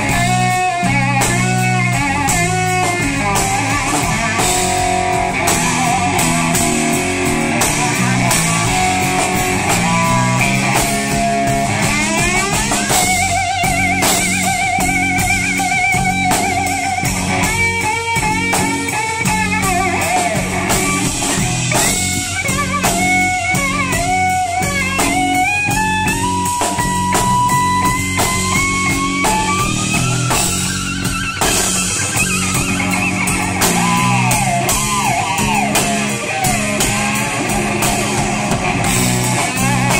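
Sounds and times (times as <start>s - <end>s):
drum kit: 0.0s - 39.9s
electric guitar solo: 0.0s - 39.9s.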